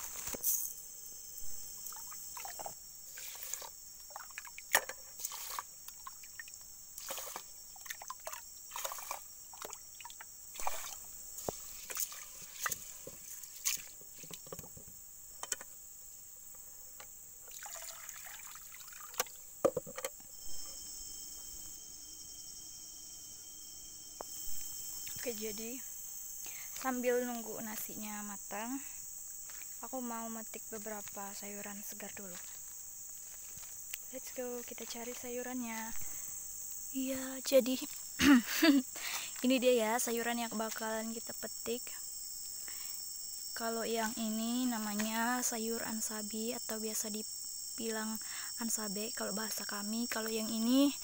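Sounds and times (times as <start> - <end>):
forest insects droning: 0.0 - 51.0
water sloshing in metal pot: 1.8 - 14.6, 17.5 - 20.1.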